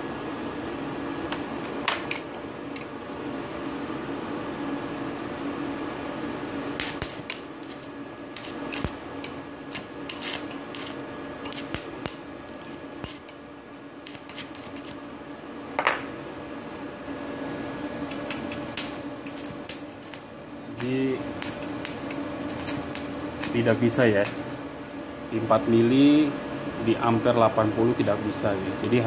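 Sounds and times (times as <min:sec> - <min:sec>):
welder machine hum: 0:00.0 - 0:29.0
welding arc crackling: 0:06.7 - 0:15.0, 0:18.1 - 0:24.6.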